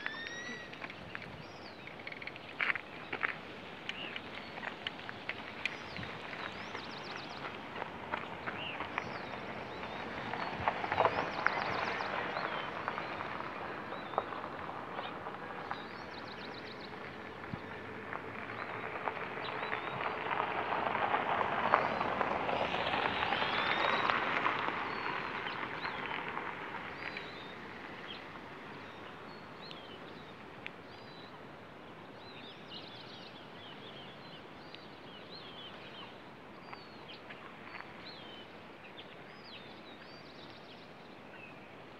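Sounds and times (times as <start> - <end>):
small birds chirping: 0.0 - 17.7
steady outdoor hiss: 0.0 - 41.9.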